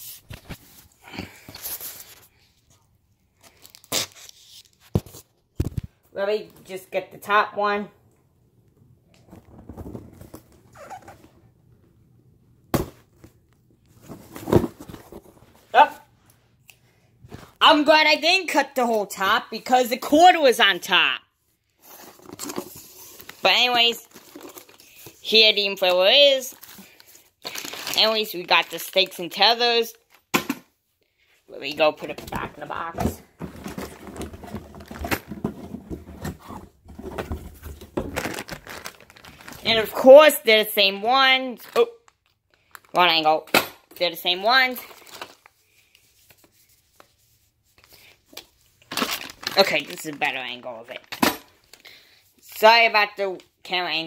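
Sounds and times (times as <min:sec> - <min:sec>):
packaging rustling and crinkling: 0:03.3 - 0:06.0, 0:21.8 - 0:25.3, 0:26.4 - 0:29.0, 0:32.2 - 0:40.0, 0:41.6 - 0:43.0, 0:44.8 - 0:46.5, 0:47.8 - 0:52.0
plastic bag rustling: 0:32.3 - 0:40.0, 0:48.8 - 0:51.8.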